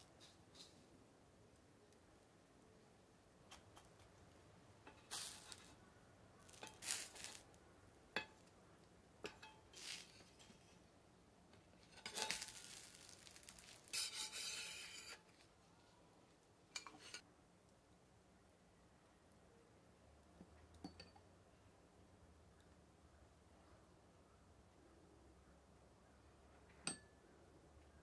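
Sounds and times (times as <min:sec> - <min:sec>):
spatula scraping griddle: 0:04.9 - 0:05.7, 0:06.5 - 0:07.5, 0:09.3 - 0:10.8, 0:11.8 - 0:15.3.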